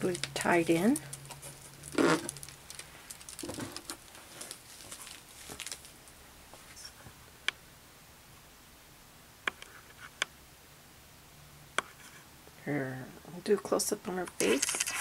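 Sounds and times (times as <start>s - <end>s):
handling rustle: 0.0s - 7.0s.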